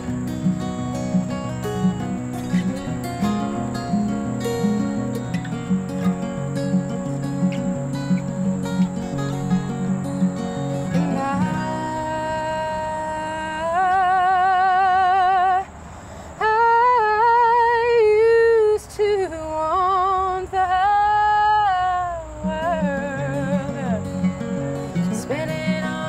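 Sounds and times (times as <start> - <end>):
acoustic guitar strumming: 0.0 - 15.7, 19.6 - 26.0
woman singing wordlessly: 10.8 - 15.8, 16.4 - 26.0.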